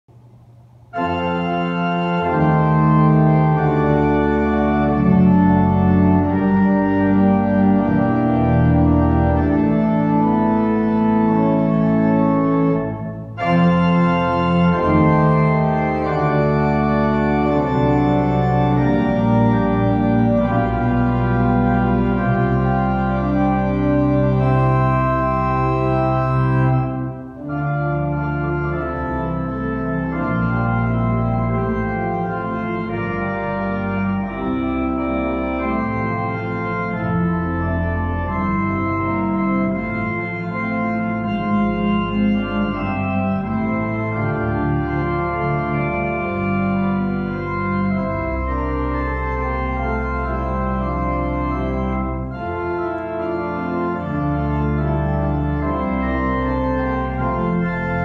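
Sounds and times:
organ playing held chords: 0:00.1 - 0:58.0.

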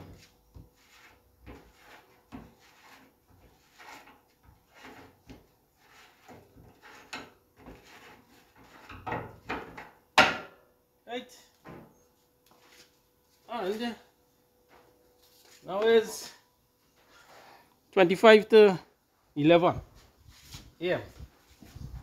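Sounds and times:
metal scrapes and knocks: 0:00.0 - 0:10.5.

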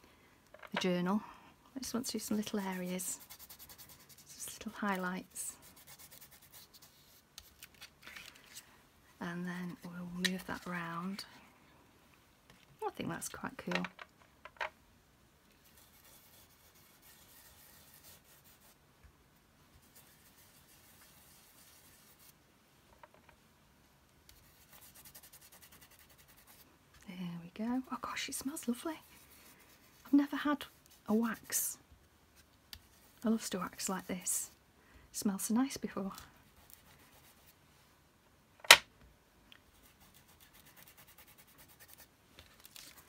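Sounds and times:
fingertip rubbing wax on paper: 0:02.4 - 0:04.6, 0:05.6 - 0:07.2, 0:15.6 - 0:18.8.

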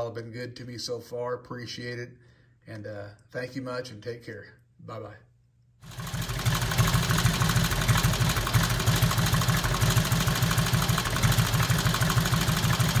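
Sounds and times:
motorcycle engine idling: 0:05.9 - 0:13.0.

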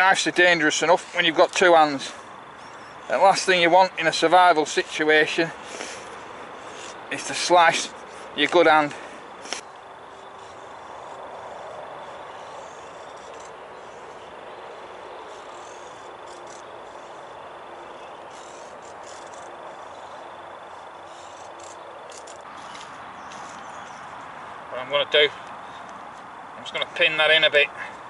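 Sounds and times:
outdoor hiss: 0:00.6 - 0:10.6
knife scraping wood: 0:09.4 - 0:24.0.

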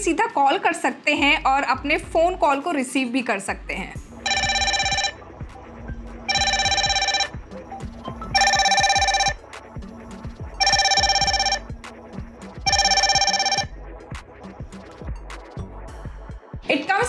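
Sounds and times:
warbling electronic ringtone: 0:04.2 - 0:14.0.

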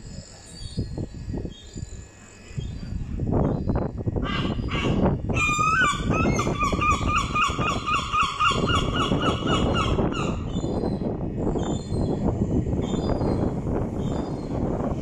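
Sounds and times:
gull calling: 0:04.2 - 0:10.5.

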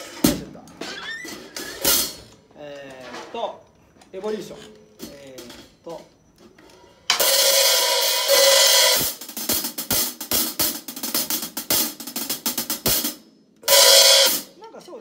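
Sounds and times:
drum beat on hi-hat: 0:07.1 - 0:14.5
snare drum: 0:07.1 - 0:14.5.

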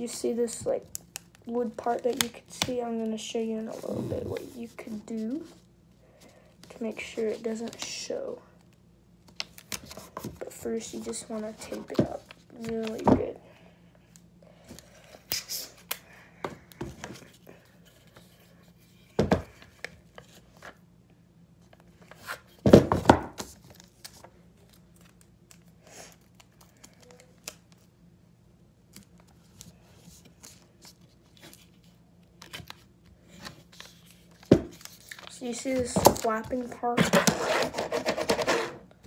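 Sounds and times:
paper rustling and crinkling: 0:29.0 - 0:38.7.

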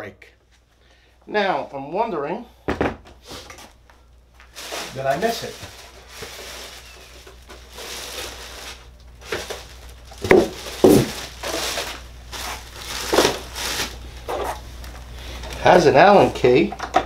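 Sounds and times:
plastic wrap crinkling: 0:03.7 - 0:16.5
styrofoam blocks knocking and squeaking: 0:04.9 - 0:08.5, 0:09.2 - 0:14.6.

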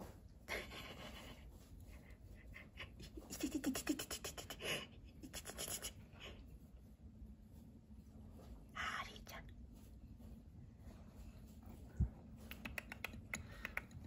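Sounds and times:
hedgehog clicking and huffing: 0:00.5 - 0:06.4, 0:12.4 - 0:14.0.

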